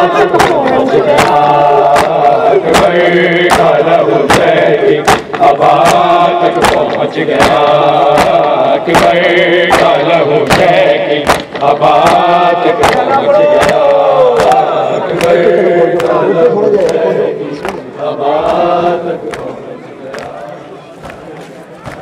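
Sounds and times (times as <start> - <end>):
men chanting in unison: 0.0 - 22.0
hands striking chests: 0.4 - 6.0, 6.6 - 14.6.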